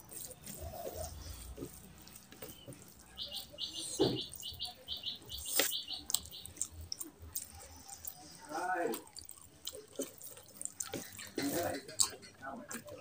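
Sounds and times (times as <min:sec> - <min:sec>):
wet squishing of hand kneading food: 0:00.0 - 0:13.0.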